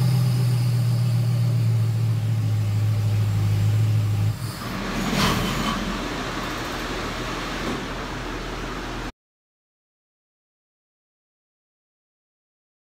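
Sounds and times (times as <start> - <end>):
engine running on dyno: 0.0 - 9.1
steady background hum: 2.4 - 9.1.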